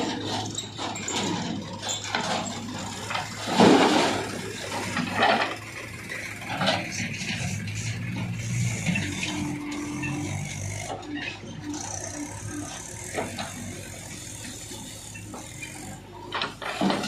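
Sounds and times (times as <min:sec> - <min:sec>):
diesel engine running: 0:00.0 - 0:17.0
soil and stones clattering onto metal: 0:00.1 - 0:05.6.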